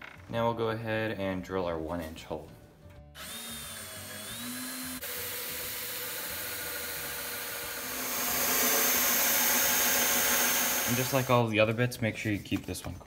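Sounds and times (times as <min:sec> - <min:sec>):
cordless drill boring into wood: 0:03.2 - 0:11.4.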